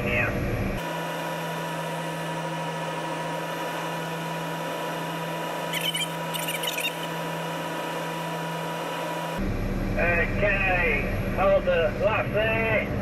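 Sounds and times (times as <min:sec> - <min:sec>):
crane engine and hydraulics whine: 0:00.0 - 0:13.0
deep machine hum: 0:00.0 - 0:13.0
squeaky chirps: 0:05.7 - 0:07.2.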